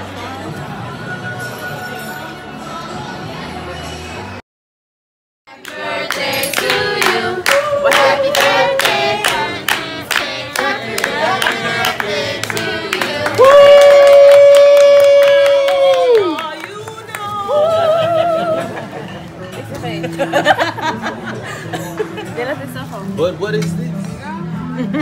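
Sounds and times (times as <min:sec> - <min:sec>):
people singing a birthday tune together: 0:05.5 - 0:13.4
people clapping in time: 0:05.6 - 0:17.7.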